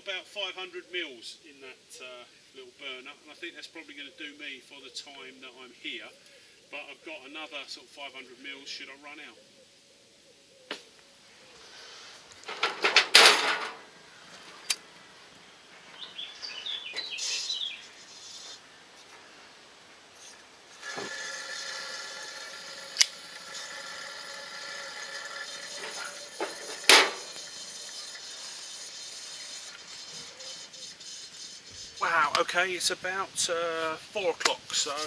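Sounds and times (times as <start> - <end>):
metal clatter: 12.4 - 13.9, 23.5 - 30.0
camp stove burner hissing: 19.3 - 35.0
sharp metallic clicks: 22.9 - 23.2.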